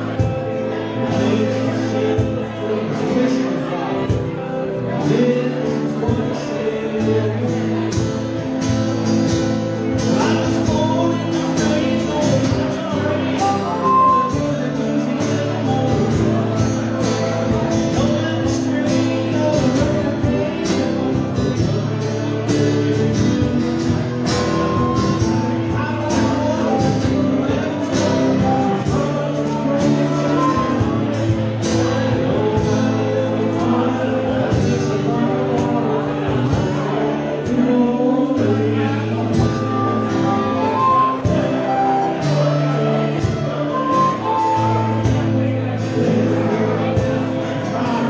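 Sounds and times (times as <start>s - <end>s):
strummed acoustic guitars: 0.0s - 48.0s
cajon beat: 6.0s - 45.4s
harmonica: 8.9s - 20.2s, 38.4s - 47.3s.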